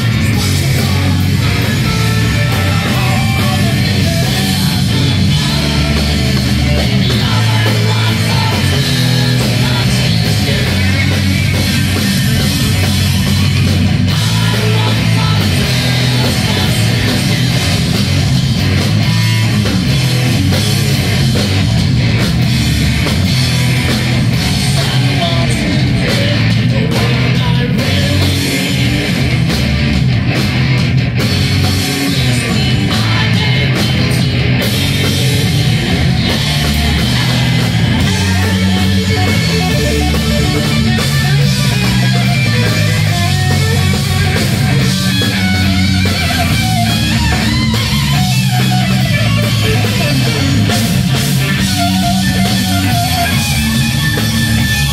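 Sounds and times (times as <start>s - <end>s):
person singing: 0.0s - 11.7s, 14.1s - 17.6s, 24.6s - 29.2s, 32.0s - 34.3s
distorted electric guitar: 0.0s - 54.9s
live heavy metal band: 0.0s - 54.9s.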